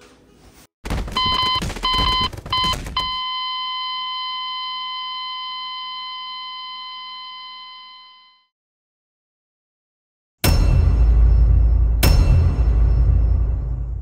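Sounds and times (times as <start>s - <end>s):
alarm clock beeping: 1.2s - 8.5s.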